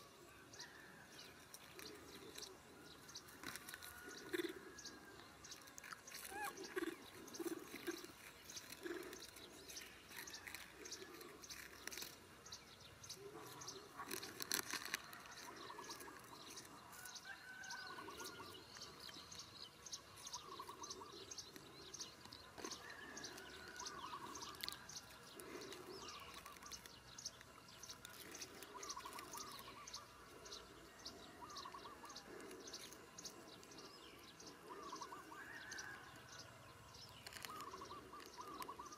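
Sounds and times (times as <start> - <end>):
birds chirping: 0.0 - 38.9
animals chewing food clicks: 1.1 - 30.0.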